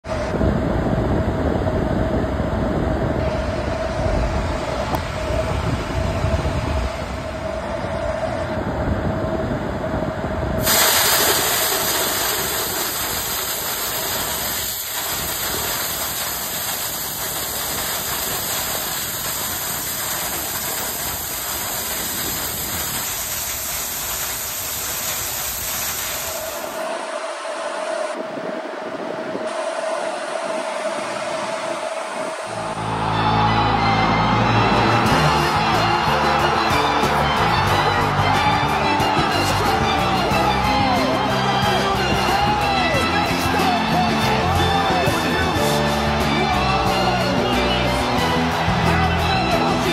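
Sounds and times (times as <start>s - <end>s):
rushing air machine noise: 0.0s - 49.9s
steady hum: 0.0s - 49.9s
loud high hiss: 10.6s - 49.9s.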